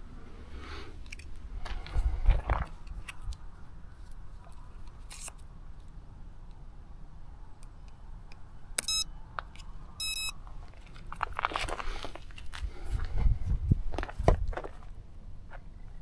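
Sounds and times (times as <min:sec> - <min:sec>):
wind rumble on microphone: 0:01.4 - 0:04.0, 0:12.5 - 0:14.9
short electronic beeps: 0:08.8 - 0:09.1, 0:10.0 - 0:10.4.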